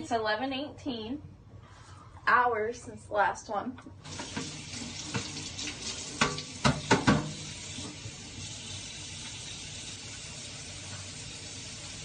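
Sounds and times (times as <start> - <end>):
tap running into sink: 4.0 - 9.4.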